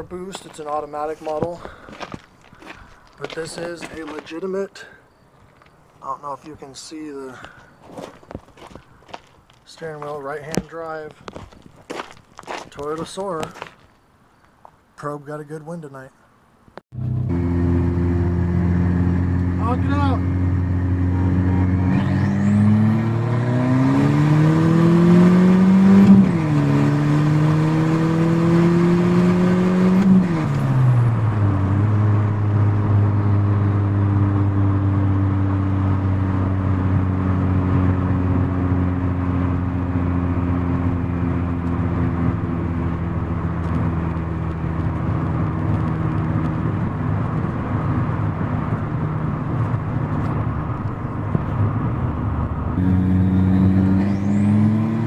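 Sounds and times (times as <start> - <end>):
car engine accelerating: 17.0 - 55.0.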